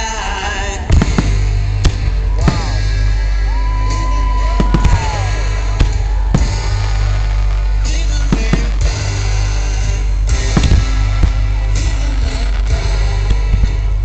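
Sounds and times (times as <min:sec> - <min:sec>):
loud music with heavy bass: 0:00.0 - 0:14.0
firework shells bursting: 0:03.9 - 0:13.9.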